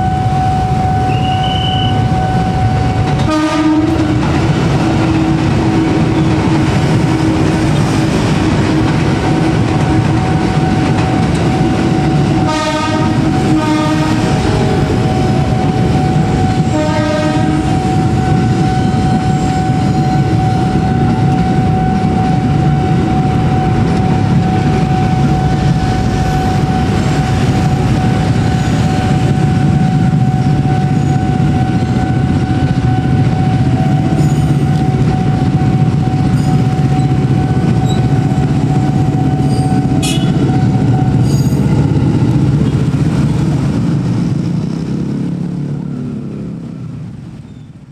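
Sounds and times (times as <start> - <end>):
train horn blast: 0.0 - 4.3, 10.2 - 38.2, 38.8 - 41.6
crossing warning signal tone: 0.0 - 44.8
trains rumbling and clattering: 0.0 - 47.9.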